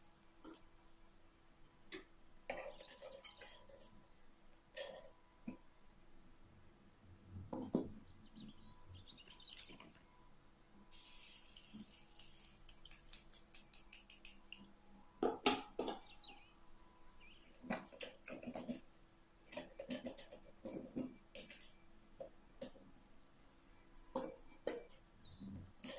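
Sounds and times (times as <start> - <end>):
short hiss: 10.9 - 12.7.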